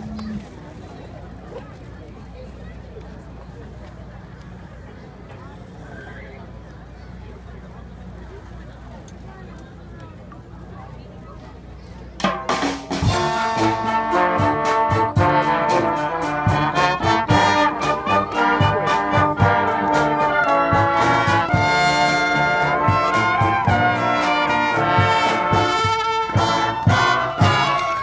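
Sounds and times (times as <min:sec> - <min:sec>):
marching band brass chords: 0:12.2 - 0:28.0
steady drum beat: 0:12.2 - 0:28.0.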